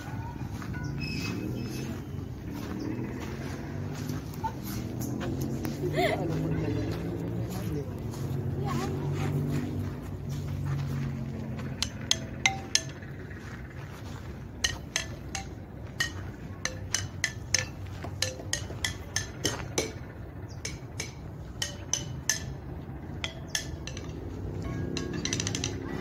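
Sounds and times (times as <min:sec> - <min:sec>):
metallophone bars struck with mallet: 0:11.6 - 0:13.6, 0:14.5 - 0:26.0.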